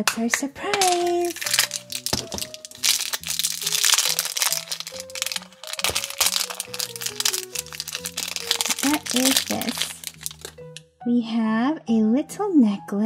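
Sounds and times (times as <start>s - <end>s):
background music: 0.0s - 13.0s
plastic wrapper crinkling: 0.7s - 10.6s.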